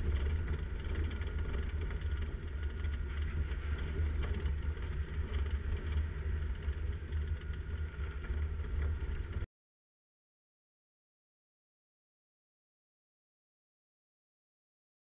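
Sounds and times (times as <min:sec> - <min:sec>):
car engine rumbling: 0:00.0 - 0:09.5.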